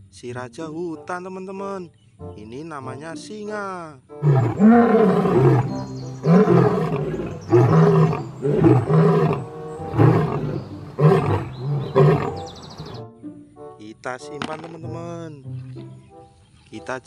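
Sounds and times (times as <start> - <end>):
lion roaring: 4.2 - 13.0.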